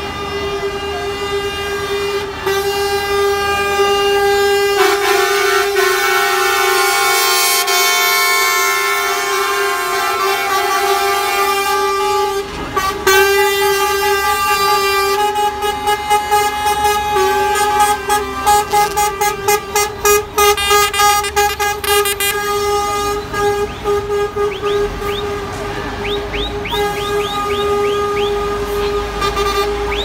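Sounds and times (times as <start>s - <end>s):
long lorry air horn: 0.0s - 30.0s
short horn toots: 0.0s - 30.0s.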